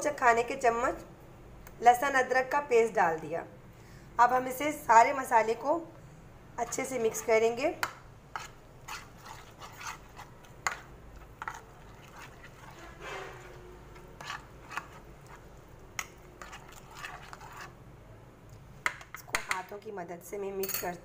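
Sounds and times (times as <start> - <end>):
spoon scraping and tapping bowl: 6.6 - 13.1, 14.0 - 15.4, 16.0 - 17.7.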